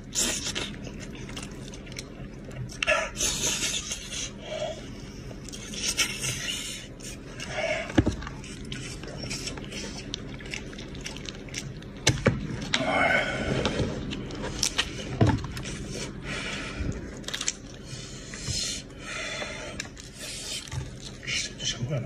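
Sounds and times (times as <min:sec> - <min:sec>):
wet chewing and smacking: 0:00.1 - 0:12.8, 0:16.8 - 0:19.0, 0:19.7 - 0:21.6
bones clicking apart: 0:17.2 - 0:17.8.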